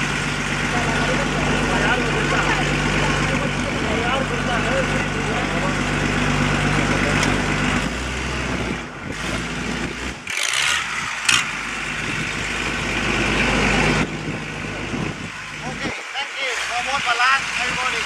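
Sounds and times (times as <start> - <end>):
loud rush of noise: 0.0 - 18.0
motorboat engine running: 0.0 - 18.0
water rushing along hull: 11.1 - 18.0.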